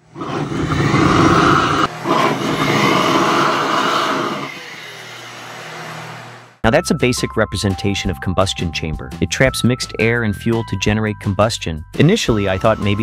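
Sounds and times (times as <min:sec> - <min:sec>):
rush of air and fire: 0:00.0 - 0:04.5.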